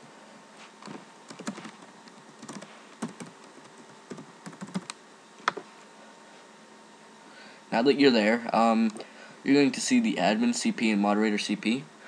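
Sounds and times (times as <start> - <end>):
typing on computer keyboard: 0.8 - 5.0.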